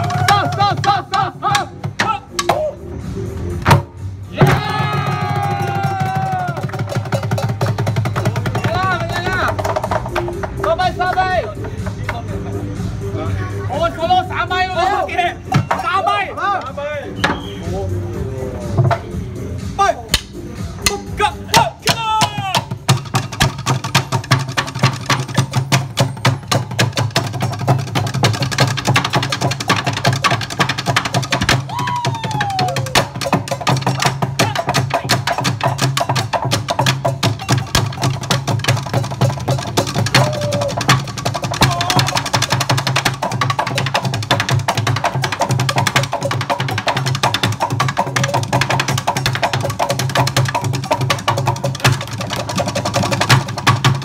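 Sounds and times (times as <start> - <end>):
drumsticks beating on wooden stools: 0.0 - 2.7, 20.1 - 54.0
deep drum beats: 0.0 - 12.9, 13.7 - 54.0.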